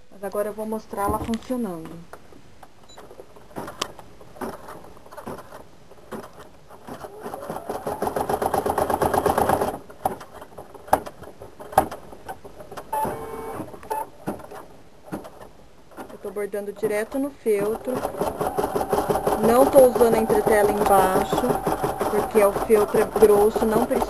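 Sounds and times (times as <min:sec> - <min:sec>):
embroidery machine stitching: 0:07.0 - 0:09.8, 0:16.8 - 0:24.0.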